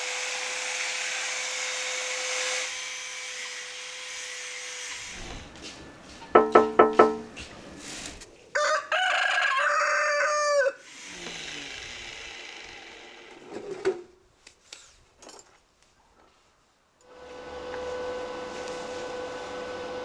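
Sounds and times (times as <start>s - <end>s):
sharp knock: 6.4s - 7.3s
rooster crowing: 8.5s - 10.8s.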